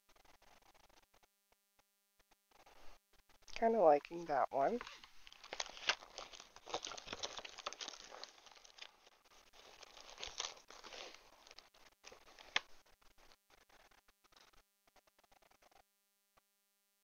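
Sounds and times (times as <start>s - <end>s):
plastic bag and paper crinkling: 4.7s - 13.9s.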